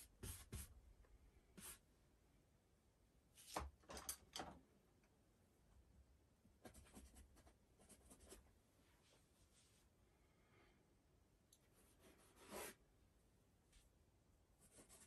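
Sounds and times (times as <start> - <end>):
paintbrush scratching on canvas: 11.8 - 12.8.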